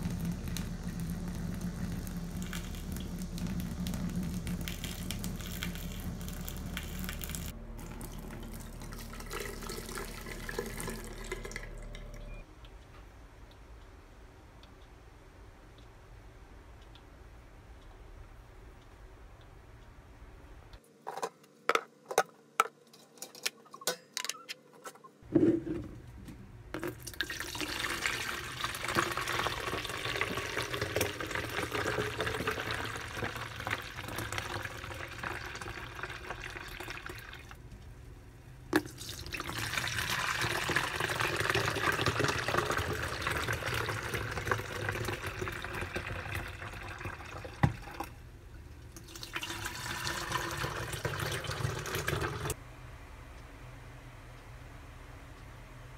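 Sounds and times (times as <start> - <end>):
liquid pouring into jugs: 0.0 - 12.1, 26.8 - 37.6, 38.7 - 48.2, 48.9 - 52.6.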